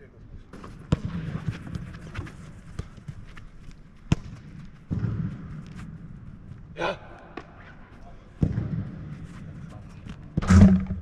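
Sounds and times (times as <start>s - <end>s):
football being kicked: 4.1s - 5.4s.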